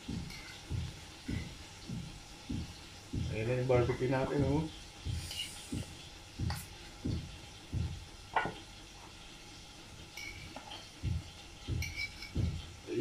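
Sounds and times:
metal spoon scraping a frying pan: 0:11.8 - 0:12.4.

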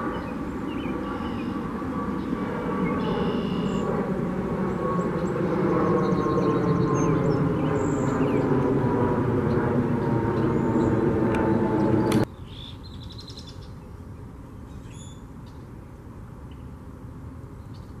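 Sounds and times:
bird trill: 0:00.0 - 0:01.7, 0:02.8 - 0:03.9
small birds chirping: 0:00.0 - 0:03.9, 0:05.1 - 0:08.8.

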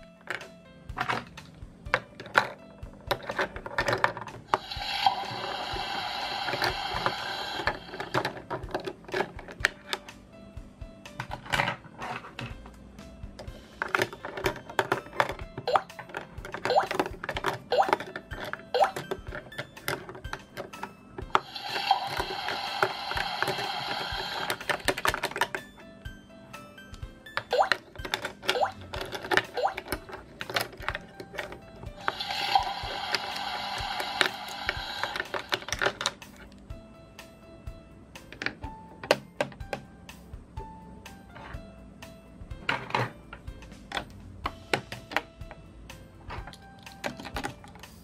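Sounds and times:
toy brush scrubbing plastic sink: 0:03.2 - 0:09.4, 0:21.3 - 0:25.5, 0:27.6 - 0:35.9
plastic toy dishes clicking: 0:13.8 - 0:25.6, 0:27.4 - 0:36.2.

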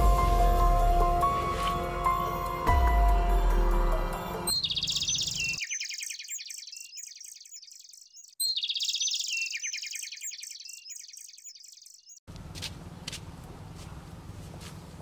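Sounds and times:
bird chirping trill: 0:02.1 - 0:12.3
high twittering: 0:04.4 - 0:12.2
outdoor background noise: 0:11.3 - 0:15.0.

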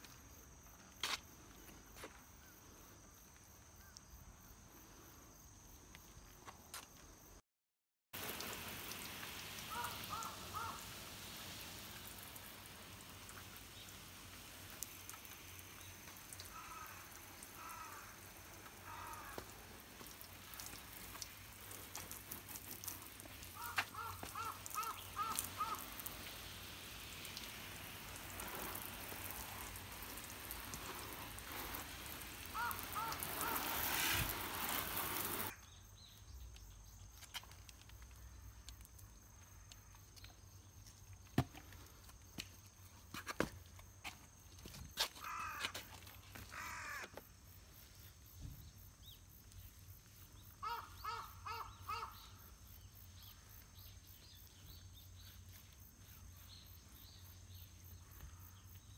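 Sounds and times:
hose water spray hissing: 0:08.2 - 0:35.6
crows cawing: 0:09.7 - 0:10.9, 0:16.4 - 0:20.7, 0:23.4 - 0:26.1, 0:32.5 - 0:33.8, 0:45.2 - 0:47.2, 0:50.6 - 0:52.4.

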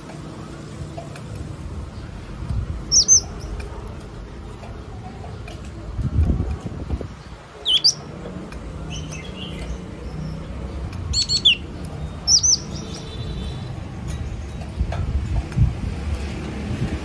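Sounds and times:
bird chirping: 0:02.8 - 0:03.7, 0:07.2 - 0:08.2, 0:08.8 - 0:13.6.

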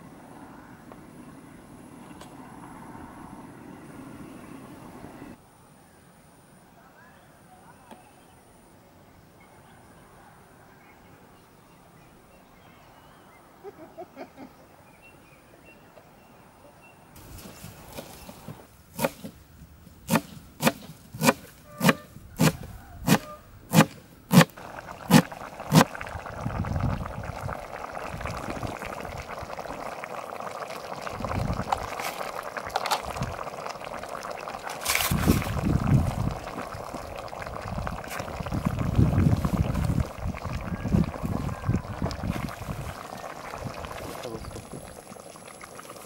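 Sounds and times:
low rumbles: 0:24.6 - 0:34.5, 0:35.1 - 0:45.7.

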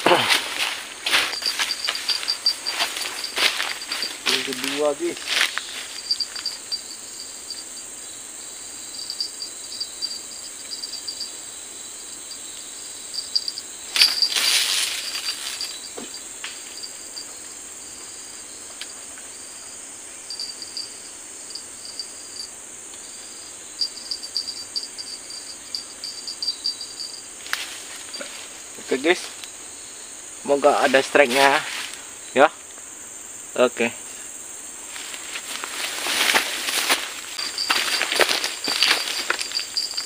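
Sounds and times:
high insect drone: 0:00.0 - 0:40.0
insects chirping in quick pulses: 0:00.0 - 0:40.0.

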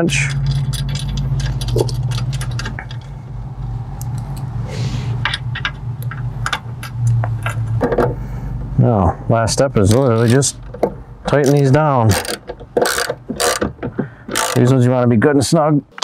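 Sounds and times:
steady low hum: 0:00.0 - 0:15.9
metal clicks of bolts and wrench: 0:00.1 - 0:03.1, 0:05.2 - 0:08.0, 0:09.8 - 0:14.7.

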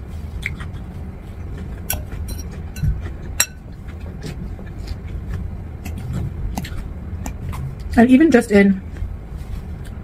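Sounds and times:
steady low hum: 0:00.0 - 0:10.0
fork clinking against bowl: 0:01.9 - 0:03.6.

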